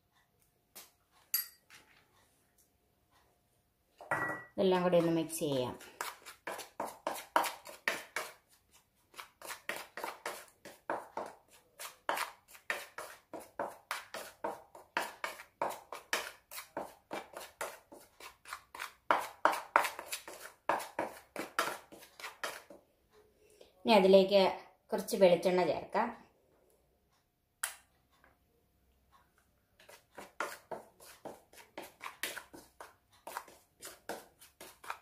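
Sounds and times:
metal spoon scraping bowl: 0:04.8 - 0:08.4, 0:09.1 - 0:22.7, 0:29.8 - 0:35.0.

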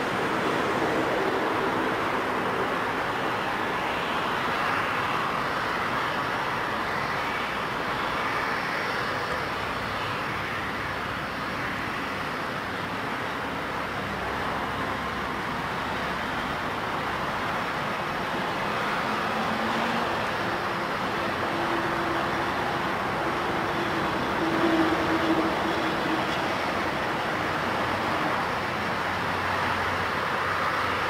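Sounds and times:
jet airliners taxiing: 0:00.0 - 0:31.0.

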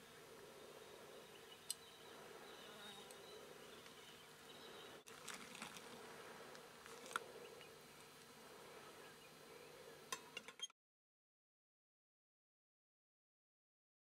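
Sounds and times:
flying insects buzzing: 0:00.0 - 0:10.1.

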